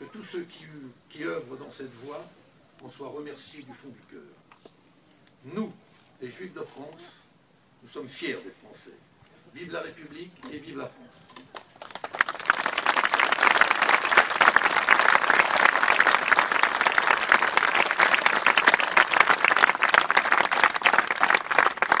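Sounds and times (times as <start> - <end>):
audience applauding: 11.5 - 22.0.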